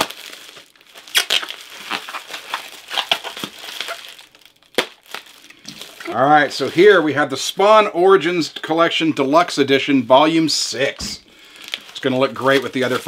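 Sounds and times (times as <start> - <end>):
packing material crinkling: 0.0 - 7.3, 10.8 - 13.0.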